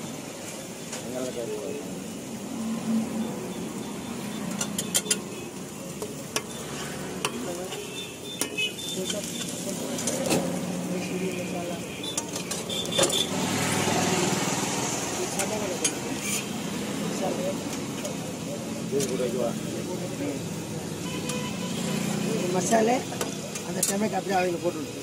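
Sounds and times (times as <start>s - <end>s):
steady sizzle: 0.0s - 25.0s
metal spatula scraping a griddle: 4.2s - 5.6s, 6.2s - 11.2s, 12.0s - 14.2s, 15.4s - 16.8s.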